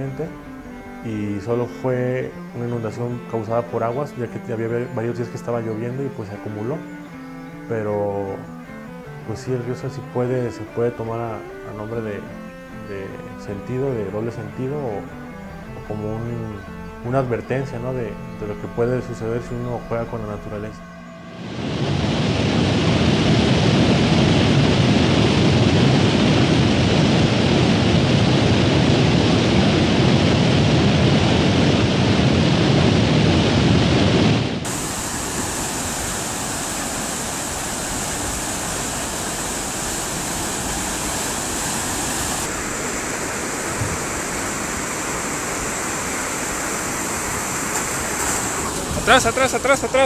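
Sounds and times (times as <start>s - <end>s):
faint high whine: 9.8s - 50.0s
floodwater rushing: 34.6s - 50.0s.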